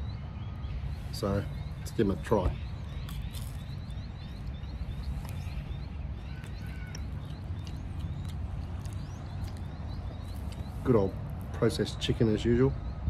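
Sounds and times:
bird chirping: 0.0s - 13.0s
low rumble of wind: 0.0s - 13.0s
crunchy food chewing: 2.7s - 11.6s.

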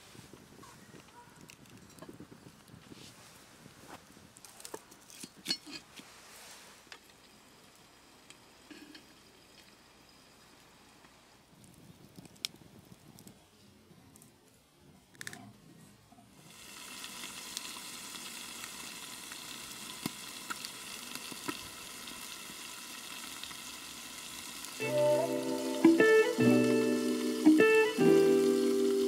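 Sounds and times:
wood fire crackling: 0.0s - 13.4s, 16.4s - 29.0s
chicken sizzling in a skillet: 16.4s - 29.0s
music: 24.8s - 29.0s.

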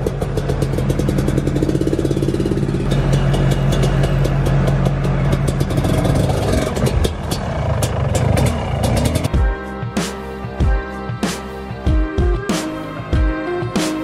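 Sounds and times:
dirt bike engine running: 0.0s - 9.4s.

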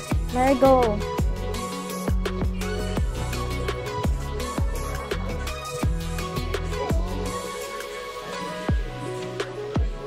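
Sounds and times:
electronic music with bass: 0.0s - 10.0s
deep kick drum: 0.1s - 6.2s, 9.8s - 10.0s.

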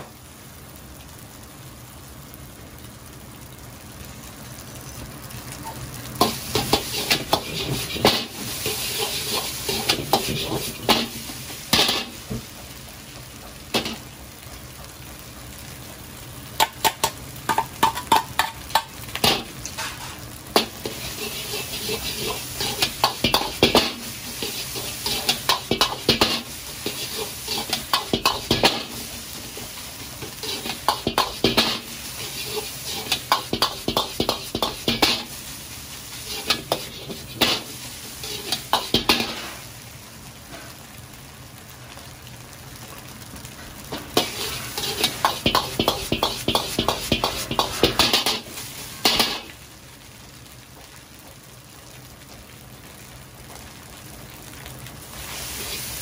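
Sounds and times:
rice sizzling: 0.0s - 56.0s
metal ladle scraping a wok: 6.2s - 12.2s, 19.2s - 35.4s, 36.1s - 39.6s, 43.9s - 49.5s.

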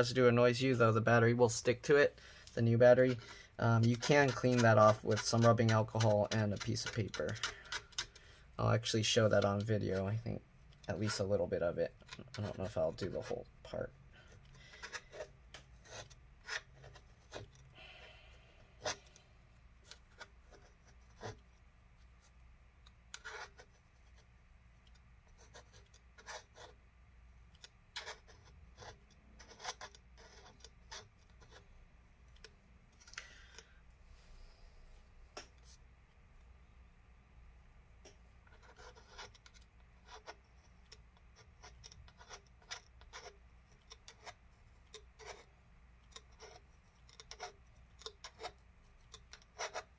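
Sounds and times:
hand tool scraping adhesive: 2.5s - 17.7s, 27.6s - 31.6s, 38.5s - 45.5s, 46.1s - 49.9s.

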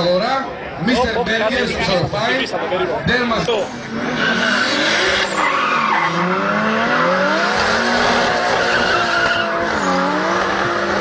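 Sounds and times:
go-kart engines revving: 3.1s - 11.0s.

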